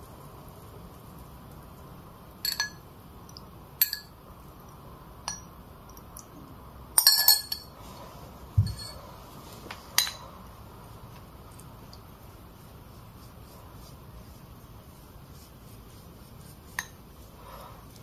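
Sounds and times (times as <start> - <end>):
paintbrush clinking on dish: 2.4 - 4.2, 7.0 - 7.8, 8.6 - 9.0, 9.9 - 10.3, 16.6 - 17.3.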